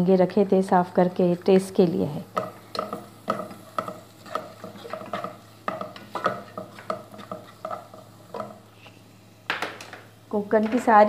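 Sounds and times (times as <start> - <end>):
spatula scraping frying food: 1.0 - 9.4.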